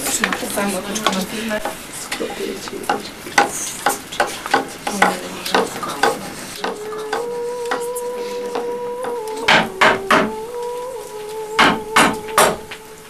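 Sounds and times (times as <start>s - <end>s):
wood fire crackling: 0.0s - 13.0s
steady held note: 6.6s - 13.0s.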